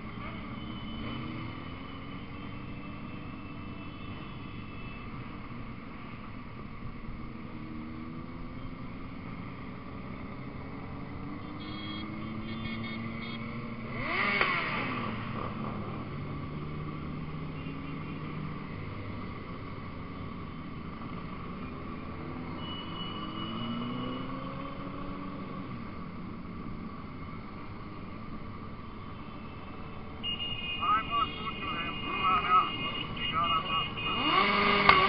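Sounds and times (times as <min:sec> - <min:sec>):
motorcycle engines running: 0:06.6 - 0:22.6, 0:30.8 - 0:35.0
motorcycle revving loudly: 0:11.5 - 0:15.6, 0:31.4 - 0:35.0.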